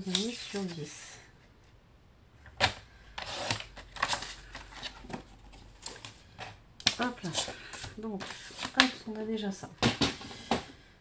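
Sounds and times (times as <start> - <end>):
paper rustling: 0.0 - 0.9, 3.2 - 9.0.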